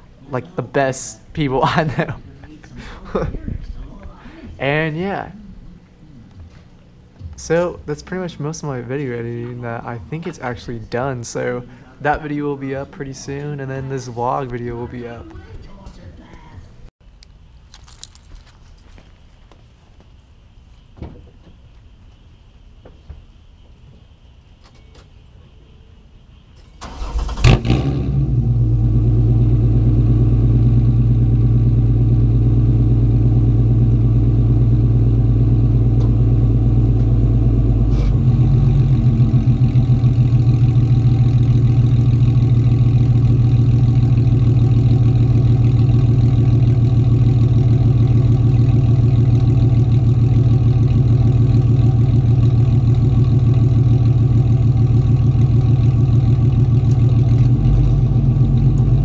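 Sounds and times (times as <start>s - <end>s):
car engine cranking and starting: 26.8s - 59.0s
loud car engine idling: 26.9s - 59.0s.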